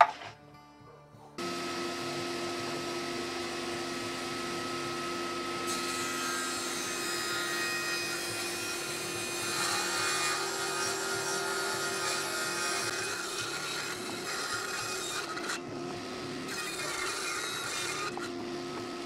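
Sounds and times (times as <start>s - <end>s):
table saw motor whine: 1.4s - 19.0s
saw blade ripping wood: 9.0s - 15.7s, 16.5s - 18.4s.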